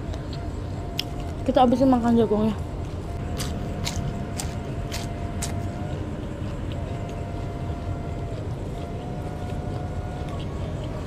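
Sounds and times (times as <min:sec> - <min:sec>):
distant city traffic rumble: 0:00.0 - 0:11.0
corn being chewed: 0:02.8 - 0:11.0.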